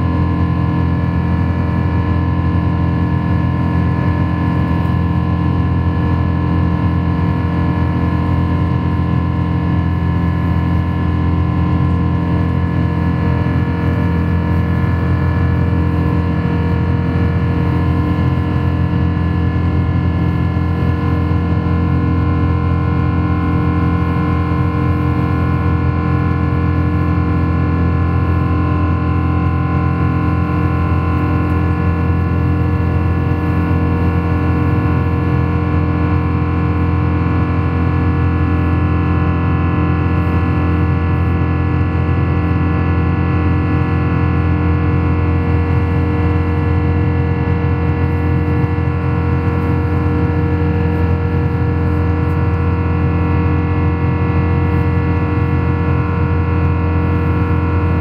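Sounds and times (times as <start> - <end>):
jet engines droning in cabin: 0.0 - 58.0.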